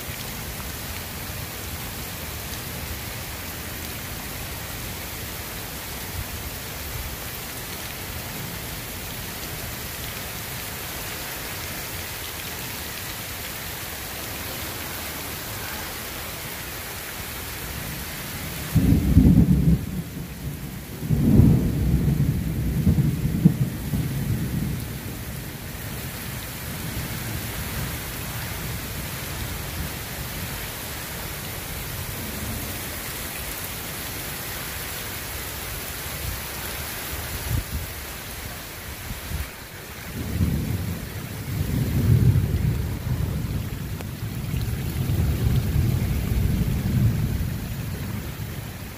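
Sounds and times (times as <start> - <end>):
heavy rain: 0.0 - 48.9
thunderclap rumbling: 18.6 - 25.5, 40.1 - 48.8.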